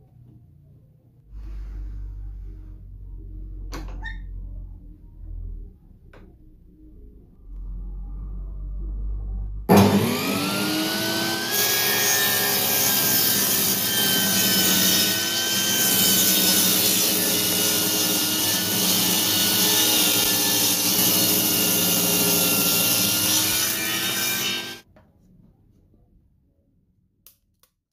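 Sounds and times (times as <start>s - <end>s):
table saw ripping wood: 9.7s - 24.8s.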